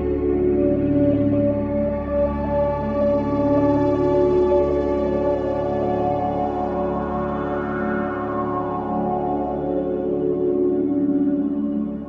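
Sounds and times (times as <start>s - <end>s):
slow ambient music: 0.0s - 12.0s.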